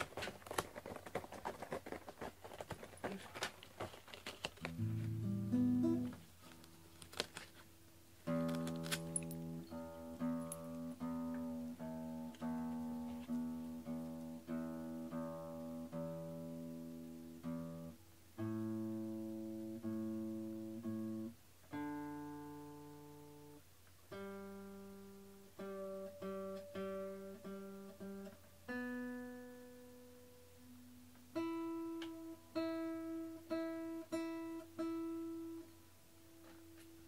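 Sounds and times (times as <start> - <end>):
slow acoustic guitar piece: 4.6 - 37.0.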